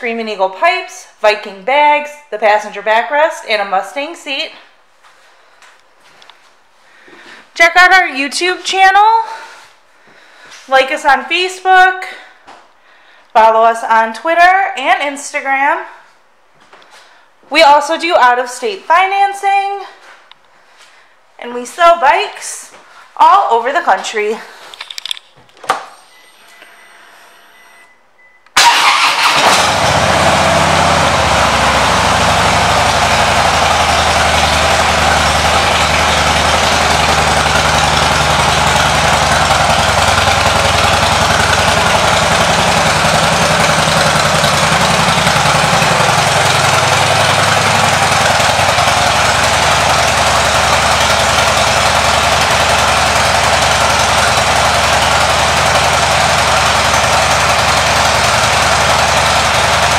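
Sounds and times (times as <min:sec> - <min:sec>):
motorcycle engine starting and idling: 0:28.6 - 0:59.9.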